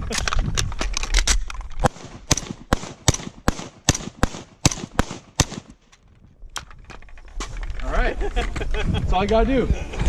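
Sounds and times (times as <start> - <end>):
rifle shots: 1.8 - 5.8.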